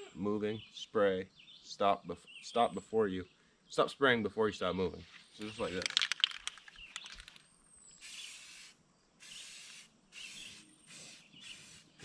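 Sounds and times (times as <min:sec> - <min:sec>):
spray paint can hissing: 0:08.0 - 0:12.0.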